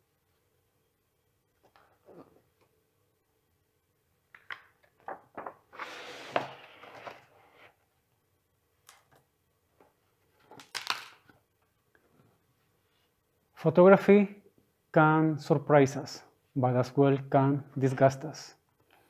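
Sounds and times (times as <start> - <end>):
book pages turning: 5.5 - 7.7.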